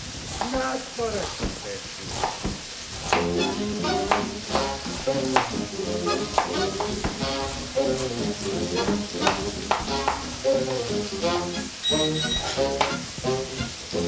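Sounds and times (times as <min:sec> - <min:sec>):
chicken sizzling in a pan: 0:00.0 - 0:14.0
background music: 0:03.0 - 0:14.0.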